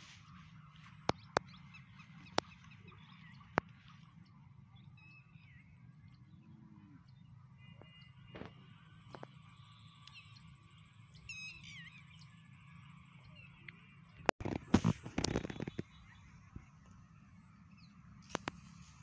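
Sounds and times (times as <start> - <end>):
low steady rumble: 0.0 - 15.1
faint bird chirps: 0.0 - 19.0.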